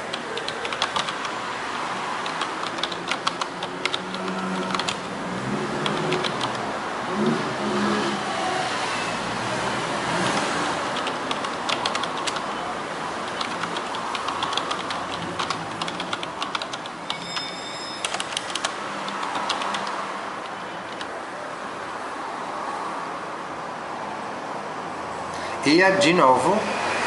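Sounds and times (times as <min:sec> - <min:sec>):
typing on computer keyboard: 0:00.0 - 0:01.3, 0:02.2 - 0:05.1, 0:05.8 - 0:06.6, 0:10.3 - 0:12.5, 0:13.2 - 0:21.1
steady background noise: 0:00.0 - 0:27.0.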